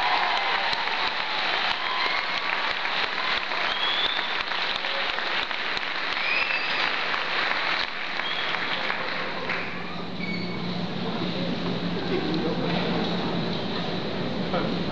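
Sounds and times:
crowd applauding: 0.0s - 9.9s.

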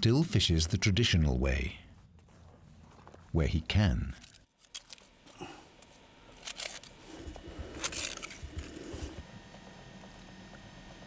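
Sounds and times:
crunching and scraping of icy snow: 4.6s - 9.2s.

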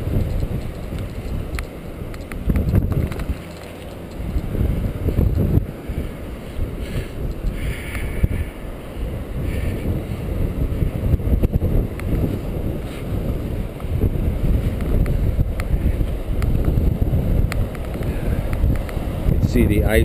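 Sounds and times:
wind buffeting microphone: 0.0s - 20.0s
light ticks: 0.2s - 4.4s, 17.5s - 19.0s.

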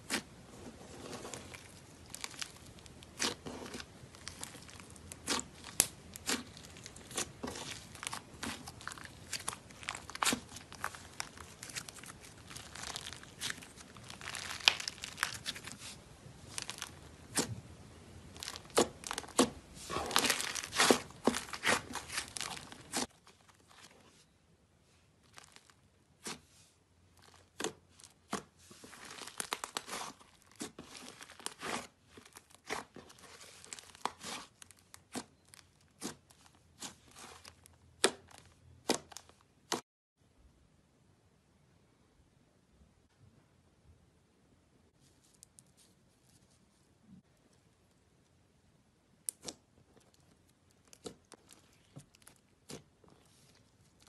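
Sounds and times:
slime squelching by hand: 0.0s - 24.2s, 25.2s - 39.8s, 49.2s - 54.0s
slime popping and crackling: 1.0s - 17.6s, 18.2s - 23.1s, 27.2s - 39.8s.

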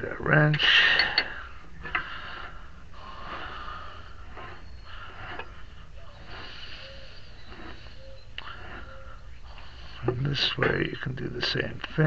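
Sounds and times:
person breathing and sniffing: 1.4s - 10.6s.

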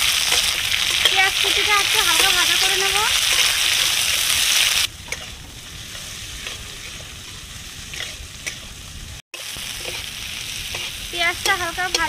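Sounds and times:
onions sizzling in hot oil: 0.0s - 12.0s
spatula scraping and tapping pan: 5.1s - 8.8s, 9.7s - 10.1s, 10.7s - 12.0s.

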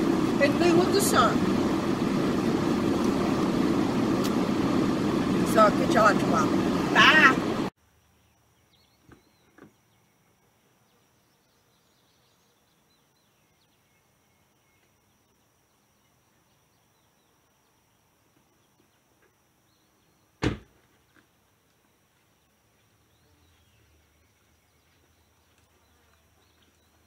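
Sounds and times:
car door slamming: 20.4s - 20.7s.

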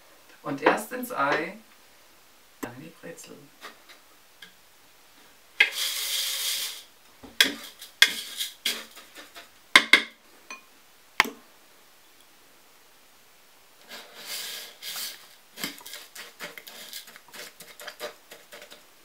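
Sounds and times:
rustling scrape: 5.6s - 9.5s, 13.8s - 18.9s.

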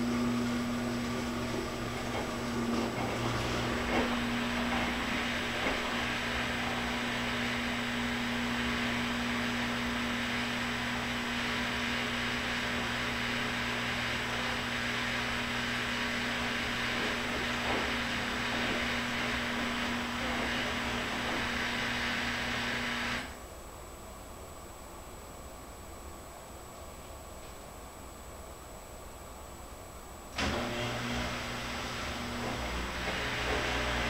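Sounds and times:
washing machine motor humming: 0.0s - 23.4s, 30.4s - 34.0s.

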